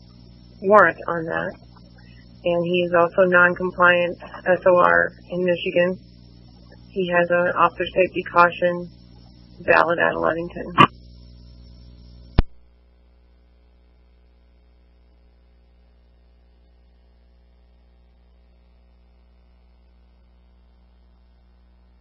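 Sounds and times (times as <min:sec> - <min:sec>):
faint electrical hum: 0:00.0 - 0:22.0
radio transmission click: 0:09.2 - 0:11.0, 0:12.3 - 0:12.6.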